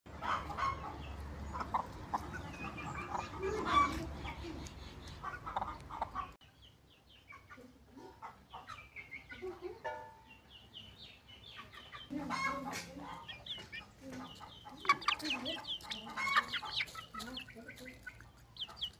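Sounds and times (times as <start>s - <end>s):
chickens clucking: 0.1s - 18.9s.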